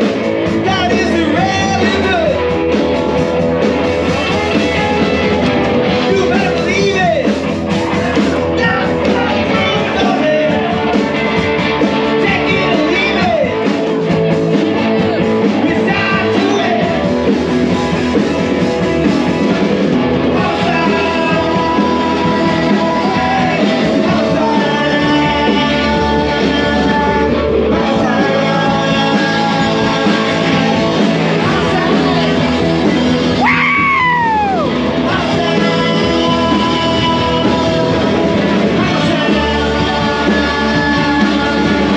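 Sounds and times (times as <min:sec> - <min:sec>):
loud music with singing: 0:00.0 - 0:41.9.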